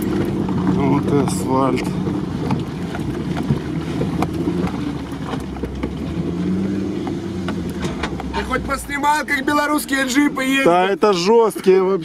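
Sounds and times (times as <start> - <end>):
car engine running at low revs: 0.0 - 12.0.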